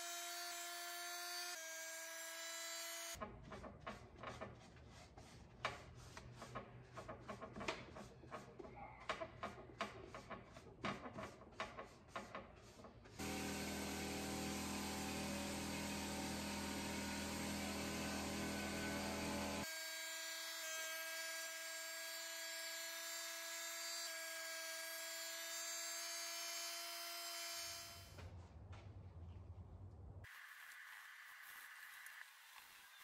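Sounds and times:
paint spray gun whine: 13.2 - 19.8.

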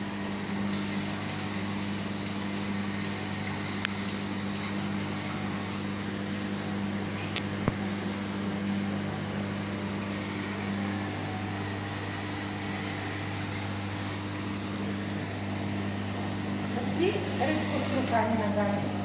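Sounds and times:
aquarium equipment humming: 0.0 - 19.0.

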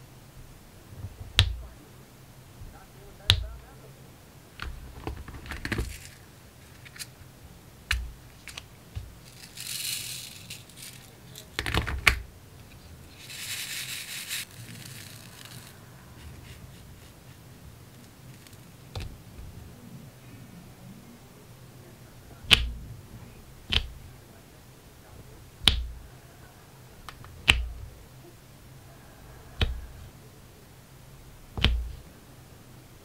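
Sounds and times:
beads rattling in plastic tray: 4.7 - 7.1, 8.5 - 12.2, 13.1 - 15.8.

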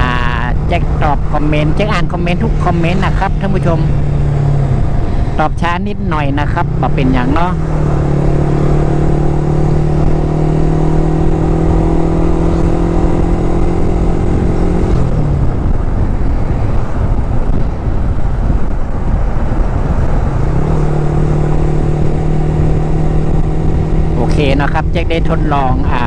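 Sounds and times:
motorcycle engine cruising: 0.0 - 26.0
wind and road rush: 0.0 - 26.0.

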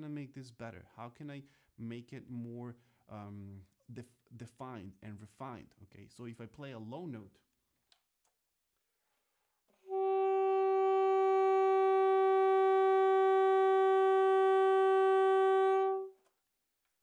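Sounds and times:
saxophone holding a long note: 9.8 - 16.2.

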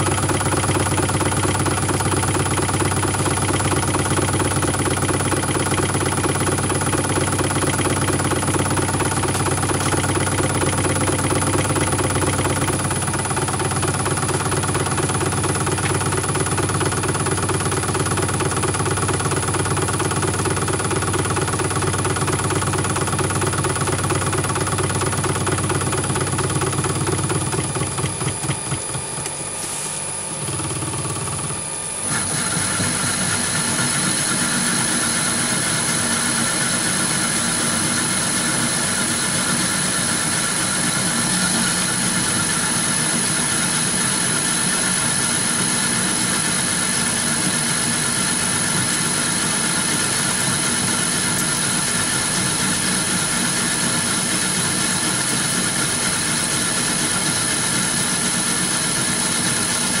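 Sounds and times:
lathe motor humming: 0.0 - 60.0.

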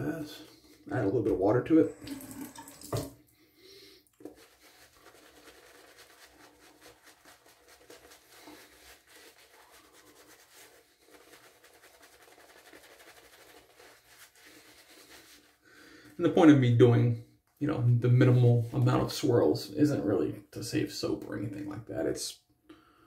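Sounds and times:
shaving brush swishing lather: 4.1 - 15.6.

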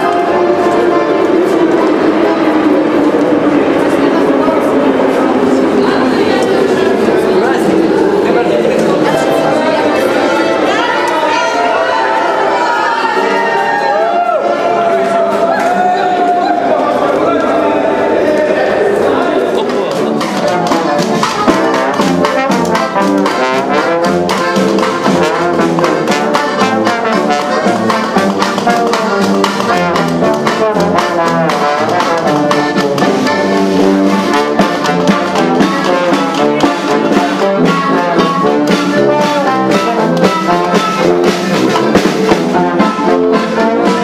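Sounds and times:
brass horns: 0.0 - 3.8, 9.0 - 44.0
steady beat: 0.0 - 12.9, 14.8 - 44.0
guitar: 0.0 - 44.0
accordion: 19.1 - 44.0.

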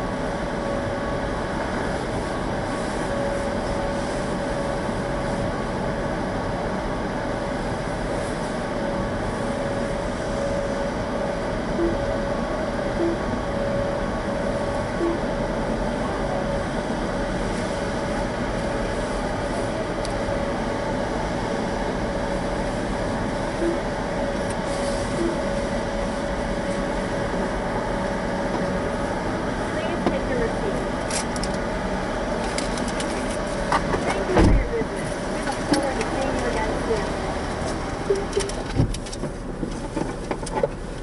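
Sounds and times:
machine drone: 0.0 - 39.6
short beeps: 11.7 - 12.2, 13.0 - 13.9, 15.0 - 15.3, 23.6 - 23.9, 25.1 - 25.5.

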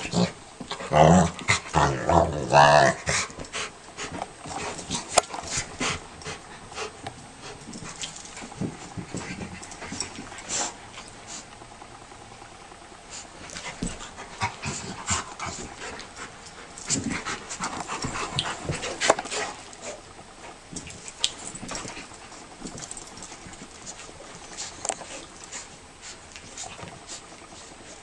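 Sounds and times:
dogs play-fighting: 0.0 - 28.0.

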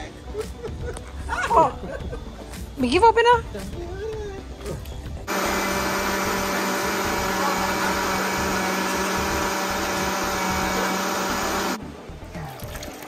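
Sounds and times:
blender running at high speed: 5.3 - 11.8.

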